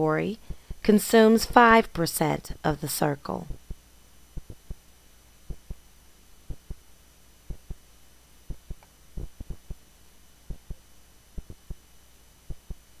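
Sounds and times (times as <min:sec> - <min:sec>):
low electrical hum: 0:00.0 - 0:13.0
faint low thumps: 0:00.4 - 0:01.0, 0:03.4 - 0:09.8, 0:10.4 - 0:13.0.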